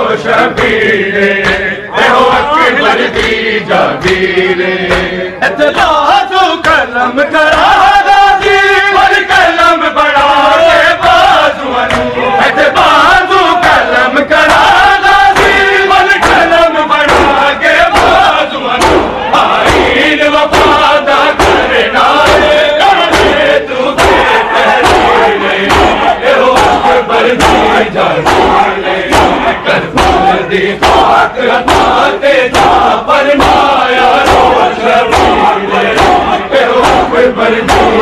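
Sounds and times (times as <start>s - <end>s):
crowd of men chanting: 0.0s - 38.0s
hands slapping bare chests: 0.5s - 0.8s, 1.4s - 1.7s, 3.1s - 3.4s, 4.0s - 5.2s, 11.9s - 12.1s, 13.6s - 38.0s.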